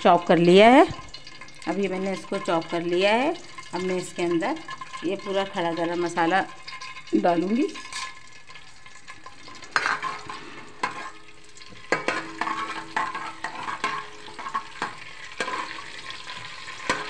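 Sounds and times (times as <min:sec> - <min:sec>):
oil sizzling: 0:00.0 - 0:17.0
metal spoon scraping a pot: 0:03.4 - 0:17.0.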